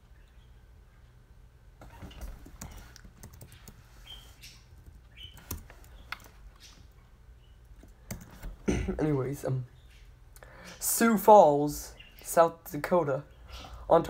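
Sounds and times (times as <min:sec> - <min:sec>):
computer keyboard clicks: 0:02.4 - 0:03.8, 0:04.8 - 0:06.3.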